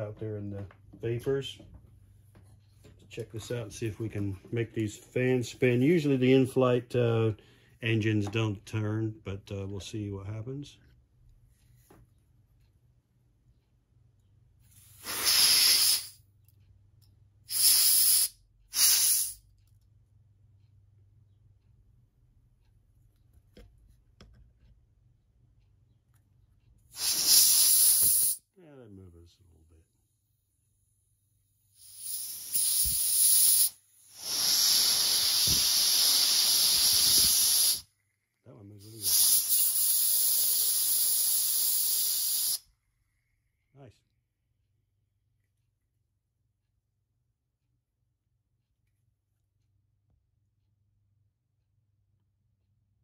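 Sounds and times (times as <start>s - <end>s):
compressed air hissing: 14.7s - 16.2s, 17.5s - 19.4s, 26.9s - 28.4s, 31.7s - 37.9s, 38.8s - 42.7s.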